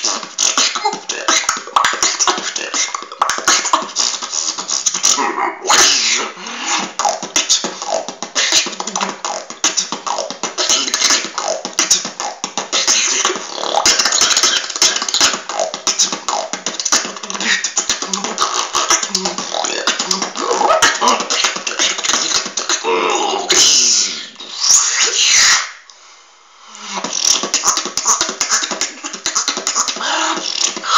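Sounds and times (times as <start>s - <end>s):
person beatboxing: 0.0s - 25.9s, 26.7s - 30.9s.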